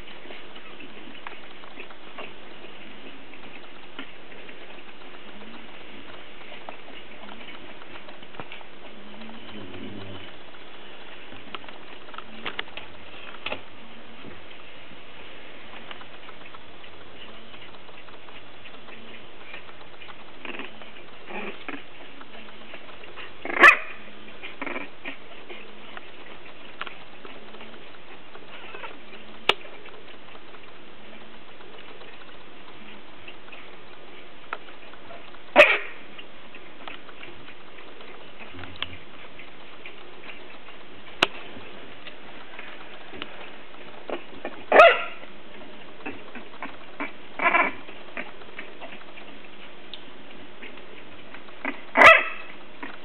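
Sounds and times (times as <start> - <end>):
steady hiss: 0.0 - 53.0
sharp clicks: 15.6 - 53.0
puppies yelping: 23.1 - 26.7, 35.0 - 36.7, 44.0 - 45.4, 46.0 - 49.4, 51.6 - 53.0.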